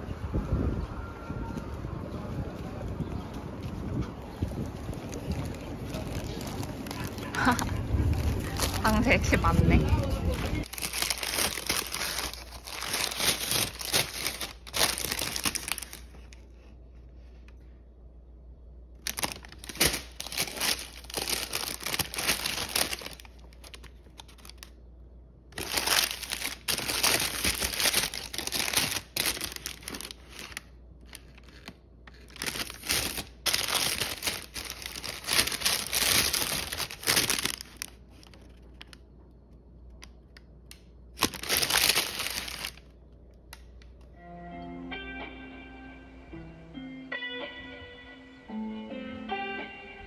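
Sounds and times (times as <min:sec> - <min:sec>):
paper bags crinkling: 0:04.7 - 0:16.7, 0:19.0 - 0:24.8, 0:25.5 - 0:39.0, 0:41.1 - 0:43.0.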